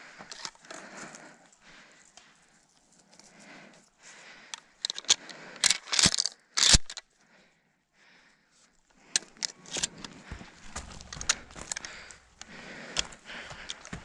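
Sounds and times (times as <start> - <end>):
footsteps crunching on dry leaves: 10.2 - 14.0.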